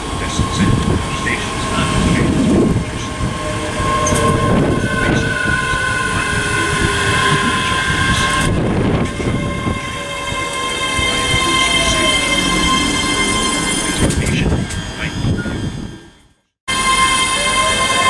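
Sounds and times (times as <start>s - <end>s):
electric traction whine: 0.0s - 18.0s
train wheels rumbling on rails: 0.0s - 18.0s.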